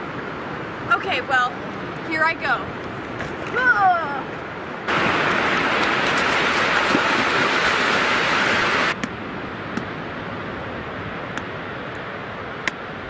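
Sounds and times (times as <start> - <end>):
surf washing in: 3.5 - 9.4.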